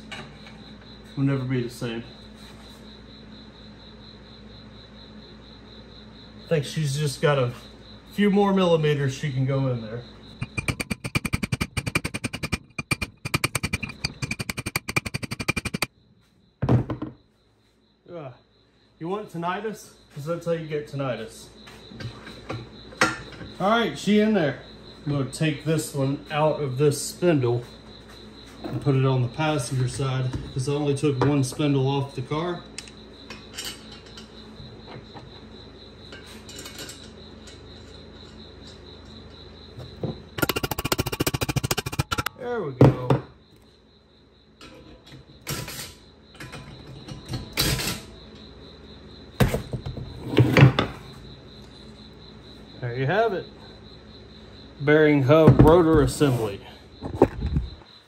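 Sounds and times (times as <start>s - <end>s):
rapid rattle of clicks: 10.4s - 15.9s, 40.4s - 42.3s.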